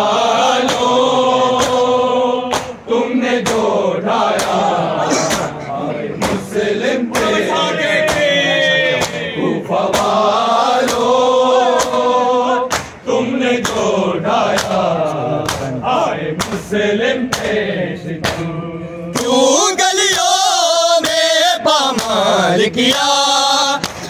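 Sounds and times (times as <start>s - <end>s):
men's chorus chanting: 0.0s - 24.0s
hand slaps on bare chests: 0.6s - 0.9s, 2.5s - 2.8s, 3.4s - 3.7s, 4.3s - 4.7s, 8.0s - 8.4s, 9.0s - 9.2s, 9.9s - 10.2s, 10.8s - 11.1s, 11.7s - 12.0s, 12.7s - 13.0s, 13.6s - 13.9s, 14.5s - 15.8s, 16.4s - 16.7s, 17.3s - 17.6s, 18.2s - 18.5s, 19.2s - 19.4s, 23.8s - 24.0s.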